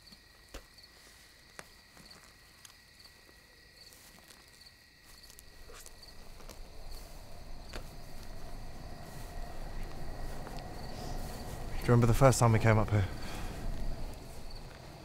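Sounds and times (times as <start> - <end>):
crickets chirping: 0.0 - 15.0
low noise: 5.3 - 15.0.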